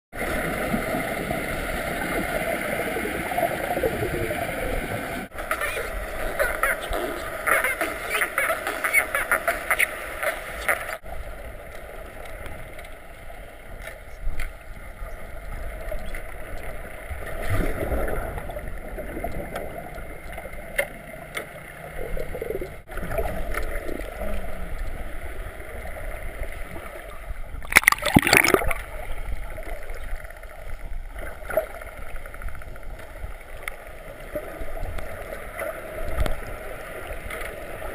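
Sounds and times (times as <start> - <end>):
loud splash: 27.6 - 28.8.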